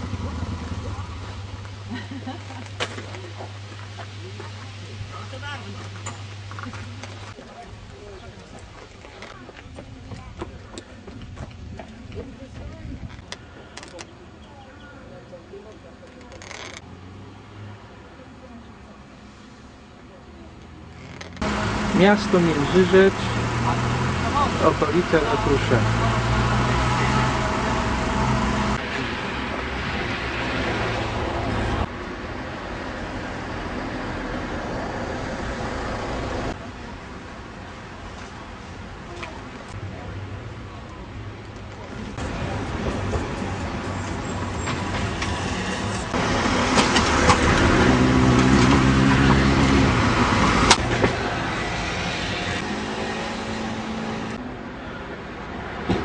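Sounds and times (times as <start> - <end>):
street traffic noise: 0.0 - 56.0
vehicle engine hum: 0.0 - 56.0
cars driving past: 21.2 - 38.6, 39.7 - 56.0.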